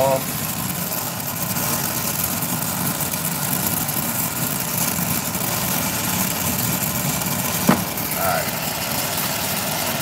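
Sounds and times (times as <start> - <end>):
torch flame rushing: 7.4 - 9.1.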